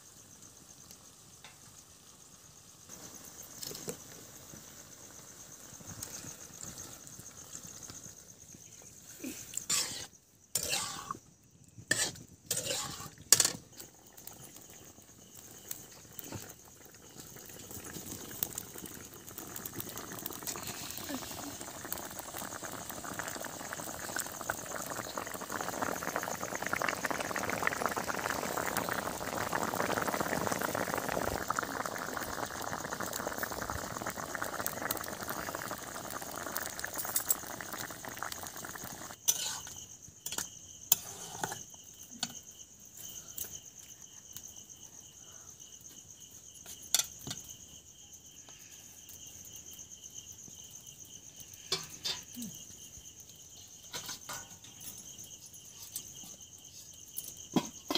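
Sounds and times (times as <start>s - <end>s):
crickets chirping: 0.0s - 57.9s
curry bubbling: 2.9s - 40.3s.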